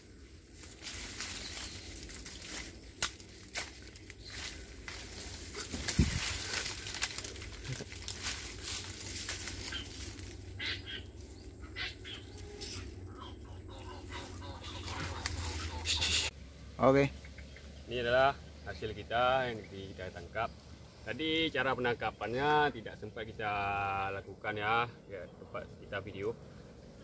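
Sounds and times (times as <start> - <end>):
dry leaves rustling and crackling: 0.0 - 13.1, 14.0 - 16.6
stalks snapping: 2.1 - 5.0, 5.6 - 10.3.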